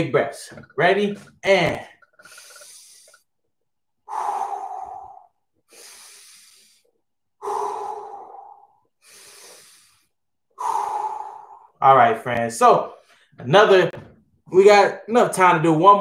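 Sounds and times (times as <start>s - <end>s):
man breathing deeply: 2.1s - 3.3s, 4.0s - 11.8s.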